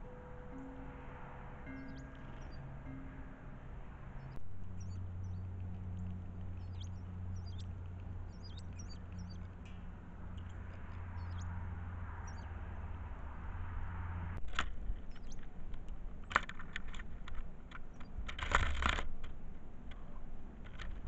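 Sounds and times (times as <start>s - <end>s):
faint high bird chirps: 0.0s - 9.7s, 10.3s - 12.6s, 15.0s - 15.4s
low hum: 0.0s - 16.4s
beaks tapping on feeder: 4.8s - 9.6s.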